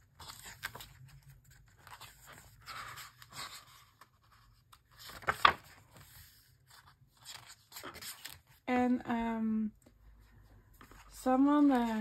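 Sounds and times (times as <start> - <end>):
book pages turning: 0.0 - 8.6.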